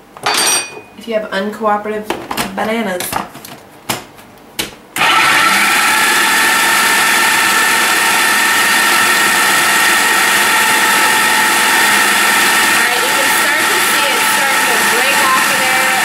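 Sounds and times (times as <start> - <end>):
food processor motor whining: 5.0 - 16.0.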